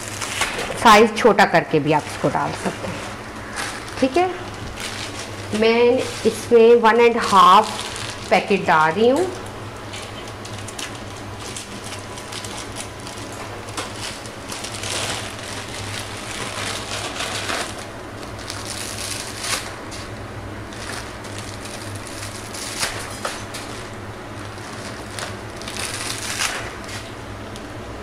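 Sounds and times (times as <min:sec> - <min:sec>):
crackles and clicks: 0:00.0 - 0:01.1, 0:07.0 - 0:27.7.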